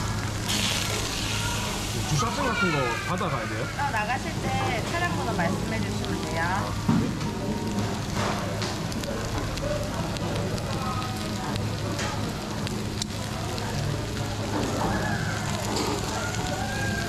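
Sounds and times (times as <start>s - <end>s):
food sizzling on a grill: 0.0s - 17.0s
indistinct chatter: 0.0s - 17.0s.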